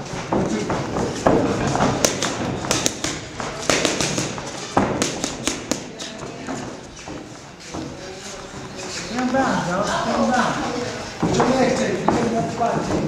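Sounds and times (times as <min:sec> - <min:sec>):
boxing gloves striking pads: 0:00.0 - 0:07.8.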